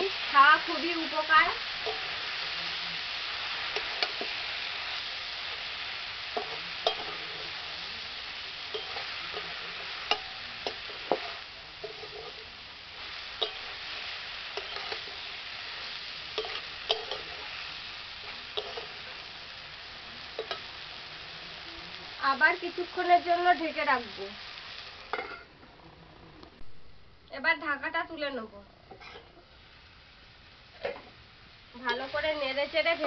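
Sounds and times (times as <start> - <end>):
vegetables sizzling in a pan: 0.0 - 33.0
metal spatula scraping a pan: 5.4 - 17.6, 18.2 - 19.2, 28.9 - 29.4.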